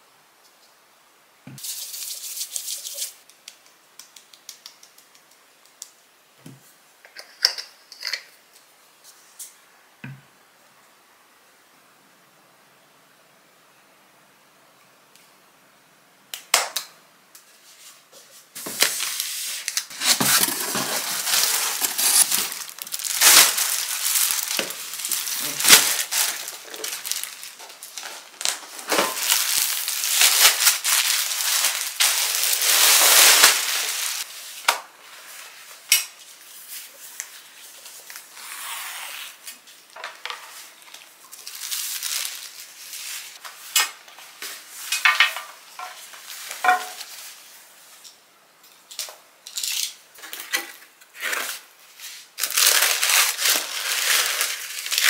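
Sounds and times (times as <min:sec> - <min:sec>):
plastic bag crinkling: 0:18.7 - 0:34.3, 0:40.5 - 0:43.4, 0:52.4 - 0:55.0.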